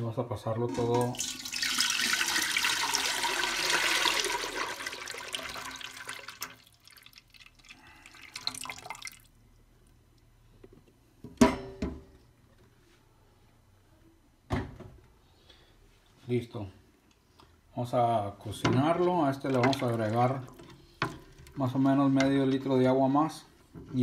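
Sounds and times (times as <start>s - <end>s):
soup pouring into pot: 0.7s - 9.4s, 19.0s - 21.6s.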